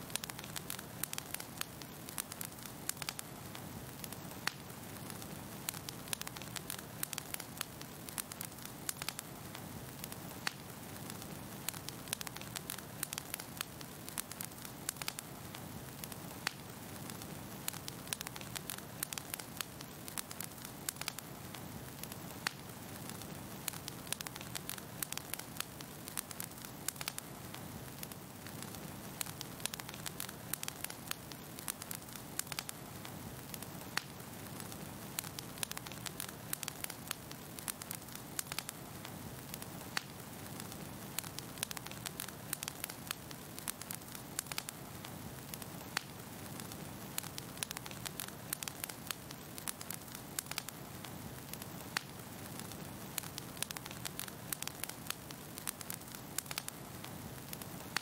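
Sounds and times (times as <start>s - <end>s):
wood fire crackling: 0.0s - 58.0s.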